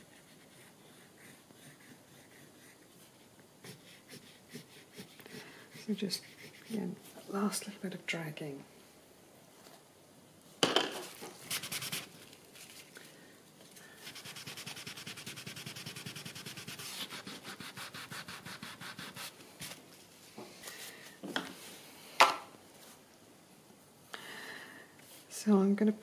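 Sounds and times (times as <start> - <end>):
rapid rubbing strokes: 14.0 - 19.4.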